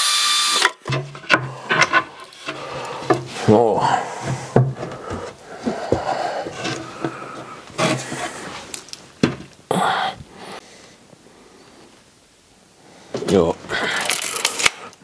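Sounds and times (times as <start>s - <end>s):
plywood scraping: 0.8s - 9.5s
wooden knocks: 0.9s - 3.4s, 4.2s - 7.2s.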